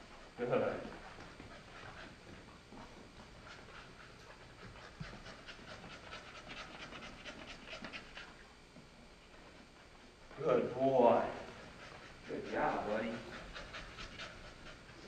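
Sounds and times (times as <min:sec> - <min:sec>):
dog panting rapidly: 0:00.8 - 0:08.4, 0:11.4 - 0:15.0.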